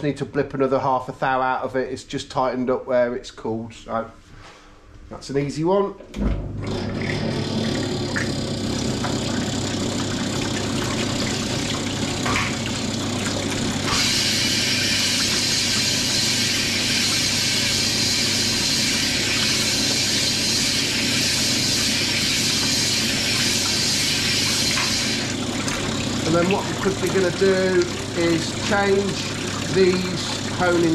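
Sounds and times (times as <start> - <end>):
honing machine hum: 6.5 - 30.9
hone hissing in bore: 13.8 - 25.3.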